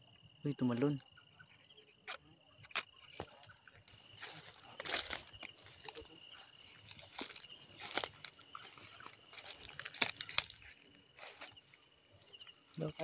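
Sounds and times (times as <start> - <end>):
night insects chirring: 0.0 - 13.0
dry grass and leaves rustling: 2.1 - 13.0
sharp crunches: 6.8 - 11.6.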